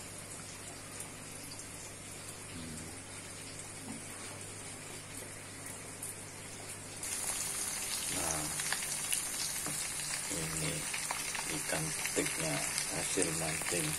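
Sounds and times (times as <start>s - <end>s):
aquarium aeration bubbling: 0.0s - 13.9s
fish sizzling in frying oil: 7.0s - 13.9s.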